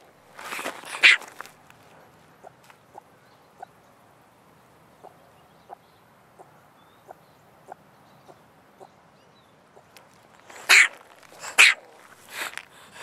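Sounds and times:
ringtail barking chirps: 0:00.9 - 0:01.3, 0:10.5 - 0:12.0.

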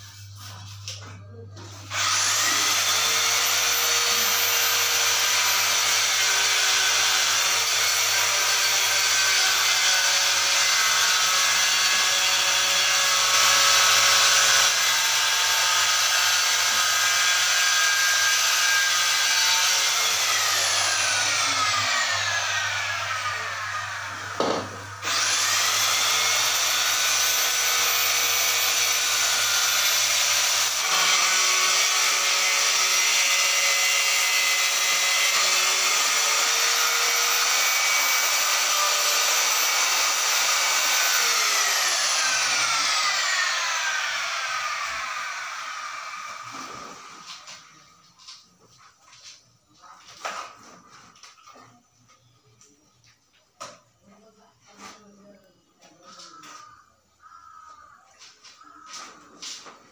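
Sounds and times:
tile cutter motor whining: 0:01.6 - 0:47.7.

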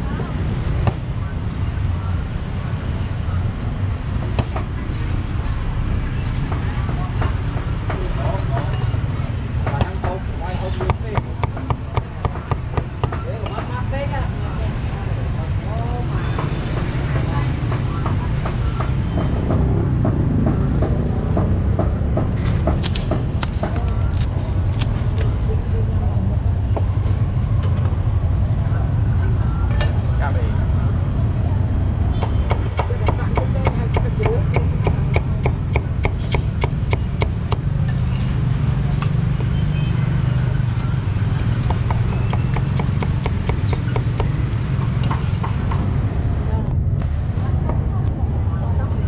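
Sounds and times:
street traffic rumble: 0:00.0 - 0:49.0
cleaver chopping on wooden board: 0:10.8 - 0:13.2, 0:32.2 - 0:37.7, 0:41.6 - 0:44.4.

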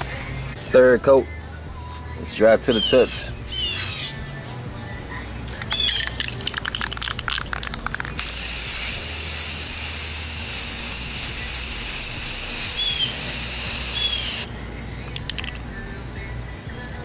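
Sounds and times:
bird chirping: 0:02.7 - 0:04.2, 0:05.7 - 0:06.2, 0:12.8 - 0:13.2
spray can hissing: 0:05.6 - 0:14.5.

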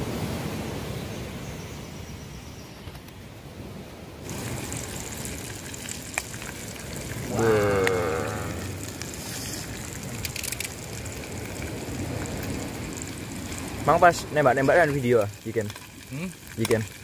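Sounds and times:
fish frying in hot oil: 0:04.2 - 0:17.0
short voice sound: 0:07.3 - 0:08.8.

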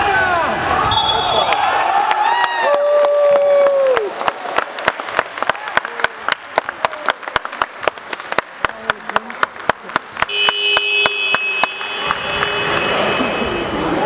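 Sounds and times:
high whistle: 0:00.9 - 0:01.5
people clapping: 0:01.4 - 0:13.5.

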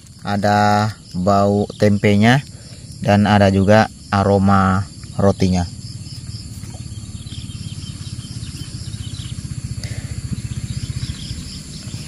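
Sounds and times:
insects chirping: 0:00.0 - 0:12.0
small engine puttering: 0:04.9 - 0:12.0.

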